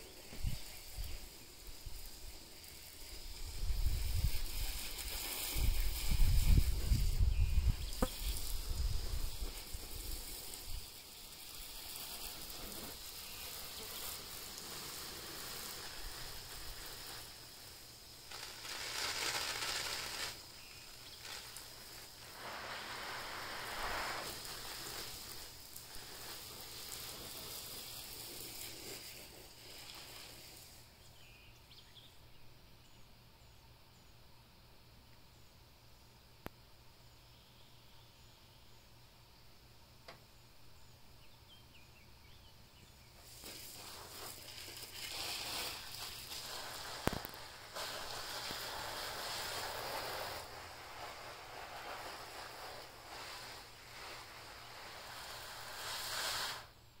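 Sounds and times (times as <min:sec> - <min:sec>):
wind hissing in trees: 0:00.0 - 0:57.0
wind buffeting microphone: 0:03.4 - 0:09.6.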